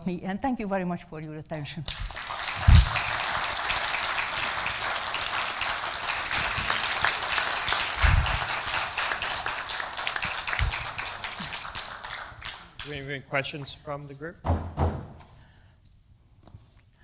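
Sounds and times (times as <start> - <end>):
audience clapping: 1.9 - 13.1
low thump: 14.5 - 15.2.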